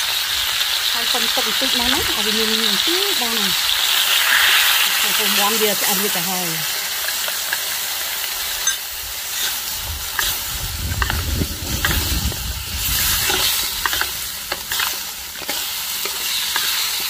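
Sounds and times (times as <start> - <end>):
chicken sizzling in a wok: 0.0 - 17.0
spatula scraping a wok: 8.4 - 17.0
low rumble: 9.8 - 14.6.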